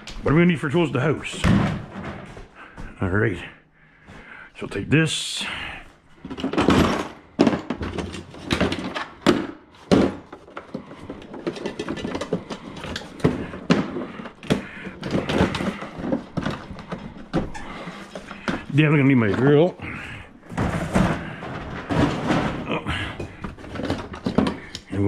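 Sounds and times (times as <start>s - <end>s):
tools clunking on a workbench: 20.5s - 25.0s.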